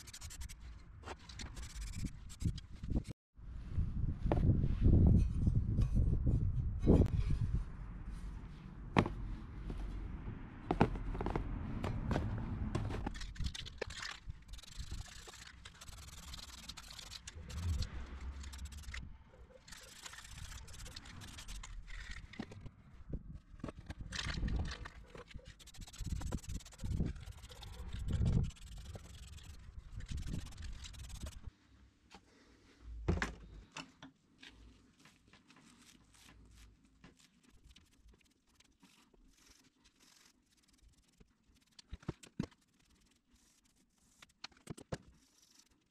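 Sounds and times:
wind on microphone: 1.9s - 8.1s, 26.0s - 28.6s.

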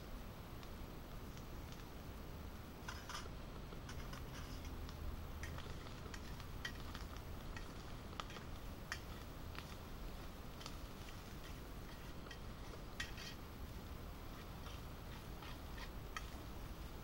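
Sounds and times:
twig fire crackling: 0.0s - 17.0s
utensil stirring in a pan: 2.9s - 17.0s.

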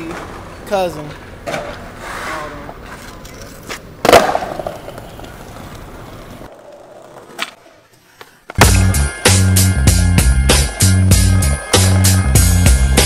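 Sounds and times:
skateboard wheels rolling: 0.0s - 9.2s
skateboard cracking: 1.4s - 8.9s.

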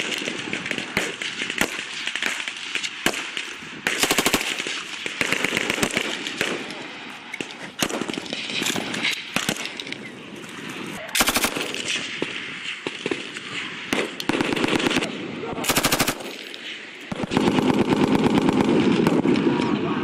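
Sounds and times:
machine gun automatic bursts: 4.0s - 6.2s, 11.2s - 12.0s, 14.3s - 18.8s
other gunfire: 11.2s - 19.3s.

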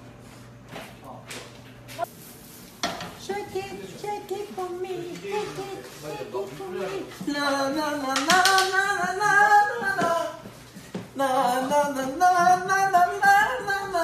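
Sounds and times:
young man singing unaccompanied: 3.2s - 10.4s, 11.1s - 14.0s.

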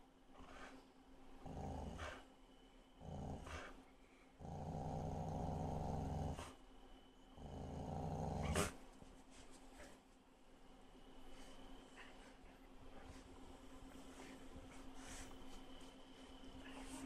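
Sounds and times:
dogs growling: 1.4s - 2.3s, 3.0s - 3.8s, 4.4s - 6.6s, 7.4s - 8.8s.

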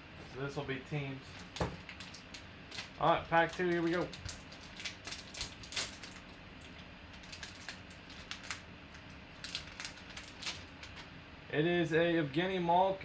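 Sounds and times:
plastic wrapper crinkling: 1.3s - 11.1s.

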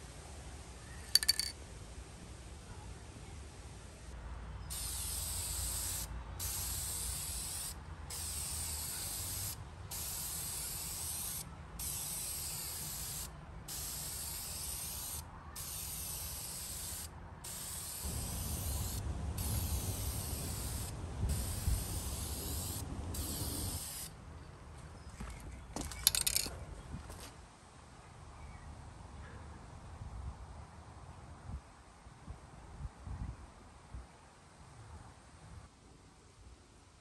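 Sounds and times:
aerosol can spraying: 4.7s - 24.1s.

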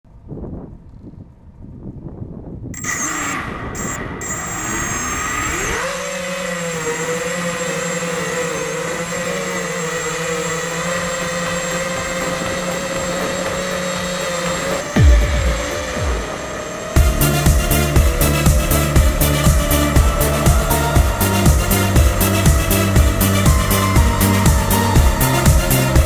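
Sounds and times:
drone motors whining: 2.8s - 26.0s.

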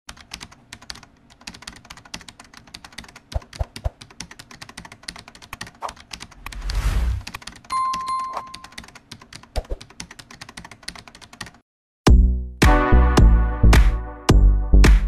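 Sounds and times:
fast irregular clicking: 0.1s - 7.7s, 8.5s - 11.6s.

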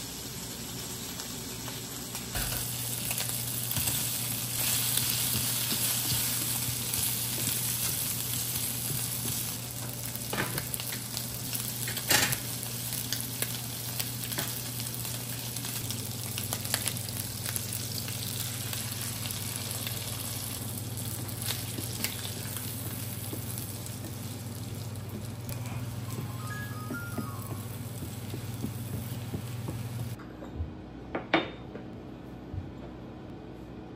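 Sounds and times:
bacon sizzling in a frying pan: 0.0s - 26.3s.

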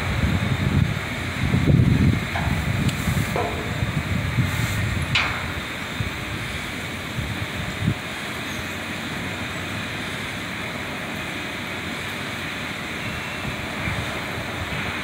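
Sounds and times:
low rumbling: 0.0s - 8.2s
steady outdoor rushing noise: 0.0s - 15.0s.

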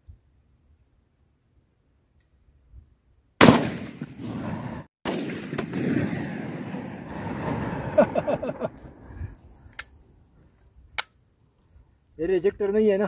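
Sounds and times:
shotgun firing with echo: 3.4s - 8.0s.

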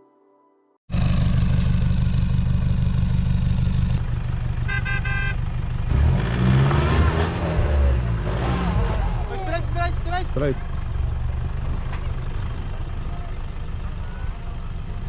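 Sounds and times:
engine revving with rattling exhaust: 0.9s - 15.0s
short horn toot: 4.7s - 5.4s.

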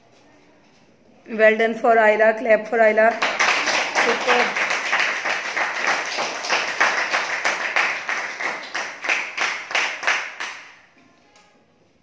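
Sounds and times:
students clapping in rhythm: 3.1s - 10.9s.

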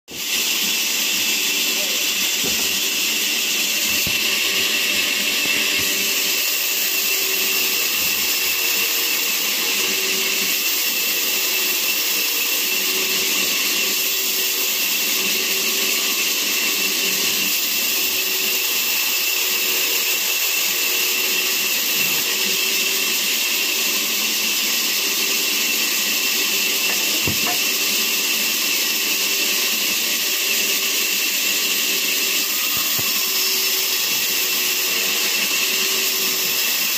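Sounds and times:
band saw cutting log: 0.1s - 36.9s.

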